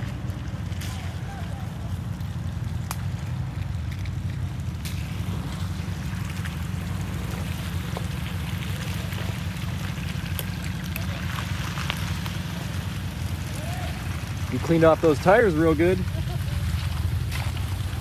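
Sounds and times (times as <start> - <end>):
engine and tyres rumbling: 0.0 - 18.0
small clicks and knocks: 2.8 - 5.0.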